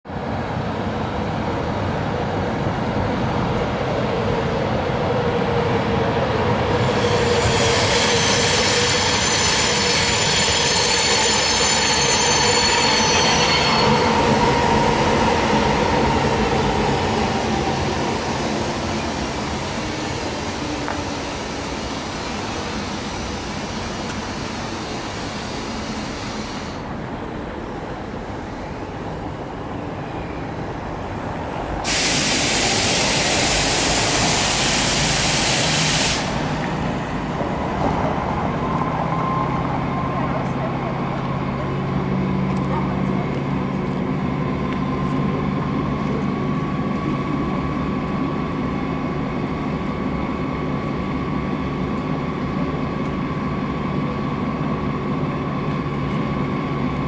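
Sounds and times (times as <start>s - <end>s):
freight train rolling on rails: 0.1s - 57.0s
train wheel squeal: 6.3s - 26.8s, 28.0s - 37.1s
loud hiss: 31.8s - 36.6s.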